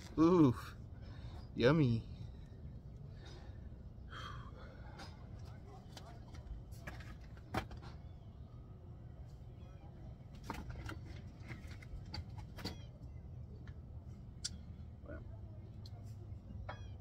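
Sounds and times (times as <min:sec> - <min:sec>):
low outdoor hum: 0:00.0 - 0:17.0.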